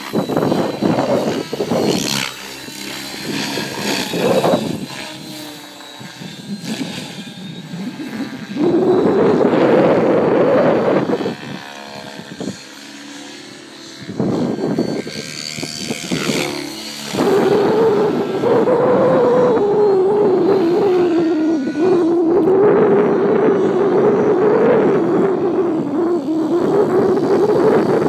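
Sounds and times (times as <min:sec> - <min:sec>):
faint motor whine: 0:00.0 - 0:28.0
helicopter rotors buzzing drone: 0:00.0 - 0:28.0.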